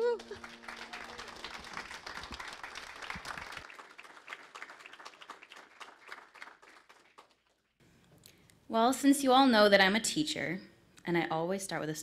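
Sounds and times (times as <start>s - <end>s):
congregation applauding: 0.0s - 7.8s.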